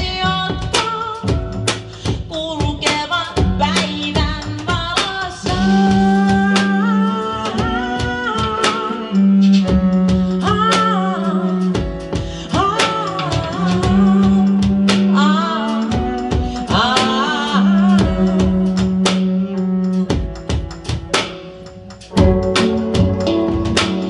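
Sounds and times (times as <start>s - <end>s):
woman singing: 0.0s - 21.1s
steady percussion beat: 7.4s - 24.0s
held low note: 13.7s - 24.0s.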